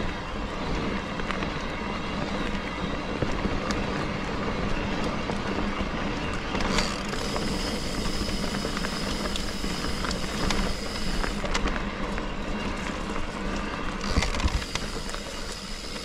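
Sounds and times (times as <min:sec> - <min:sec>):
tyre and wind noise: 0:00.0 - 0:16.0
bike rattling clicks: 0:06.2 - 0:16.0
thin high whine: 0:06.8 - 0:11.6, 0:14.0 - 0:16.0.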